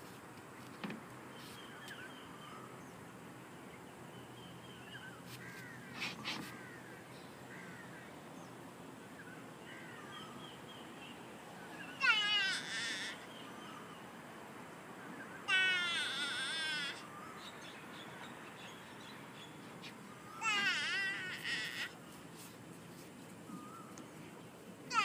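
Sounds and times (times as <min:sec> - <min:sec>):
birds chirping: 0:01.2 - 0:14.3, 0:15.0 - 0:25.0.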